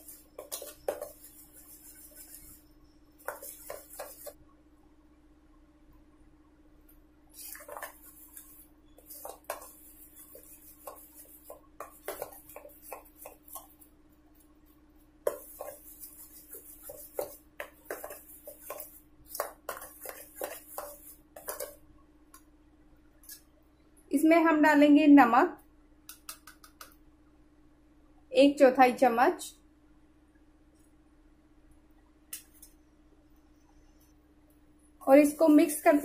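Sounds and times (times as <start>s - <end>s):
batter beaten in a bowl: 0.0s - 4.4s, 7.4s - 14.4s, 15.0s - 21.9s, 26.1s - 27.0s, 35.1s - 36.0s.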